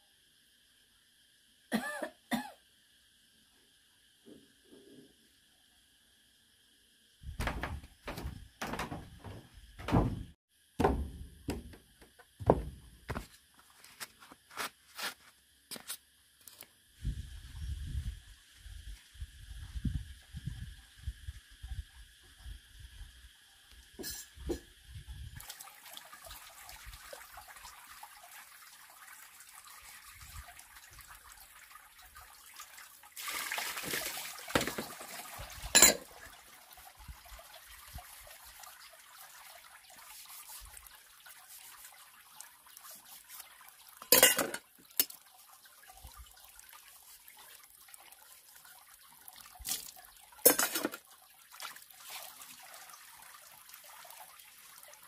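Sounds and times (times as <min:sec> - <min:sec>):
water trickling: 0:07.4 - 0:10.4, 0:25.4 - 0:55.0
sharp knocks: 0:07.4 - 0:12.9.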